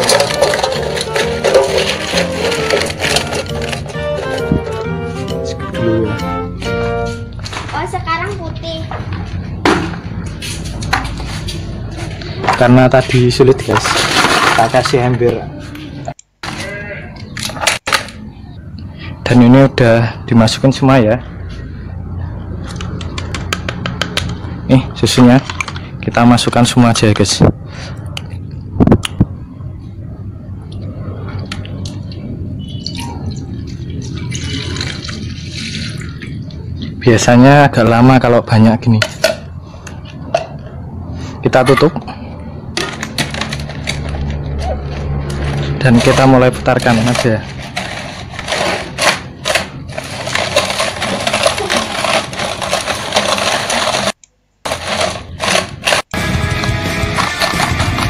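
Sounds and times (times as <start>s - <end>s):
ice cubes rattling in metal can: 0.0s - 4.4s, 13.6s - 15.1s, 45.8s - 56.0s, 57.1s - 58.0s.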